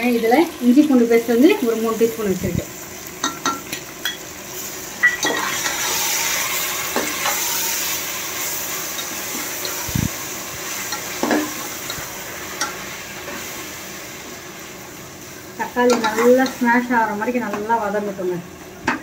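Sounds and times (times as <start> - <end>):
food sizzling in hot oil: 0.0 - 19.0
spoon stirring and knocking pan: 3.2 - 4.3, 6.8 - 7.6, 10.9 - 13.4, 15.8 - 16.6.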